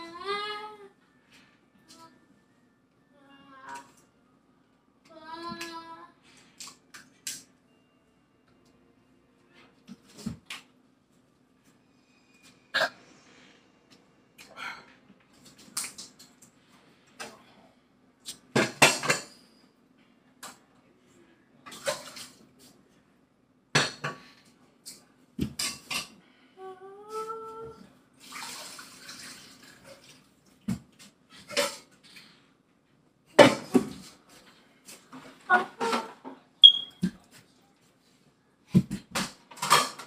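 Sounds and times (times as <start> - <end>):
dishes and cutlery clinking: 18.6 - 19.4.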